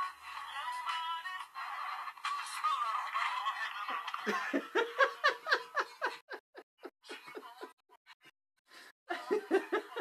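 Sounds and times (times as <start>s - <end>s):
man laughing: 4.3s - 7.8s
faint breaths: 8.7s - 9.0s.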